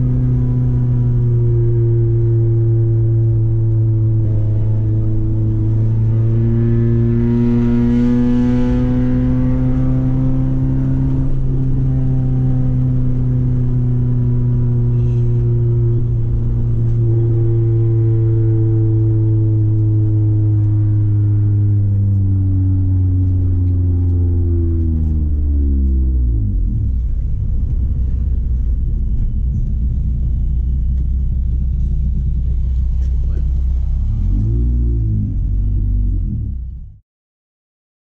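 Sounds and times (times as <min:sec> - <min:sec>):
car engine cruising: 0:00.0 - 0:37.0.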